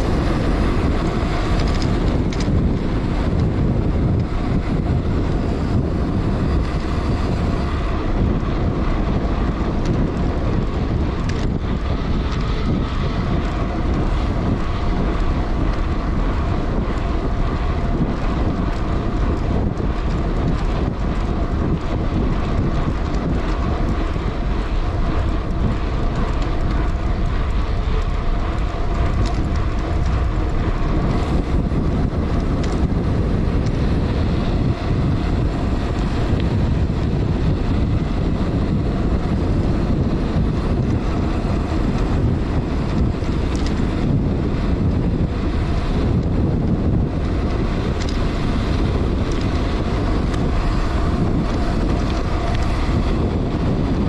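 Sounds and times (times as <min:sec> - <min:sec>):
bicycle tyres humming on asphalt: 0:00.0 - 0:54.0
wind buffeting microphone: 0:00.0 - 0:54.0.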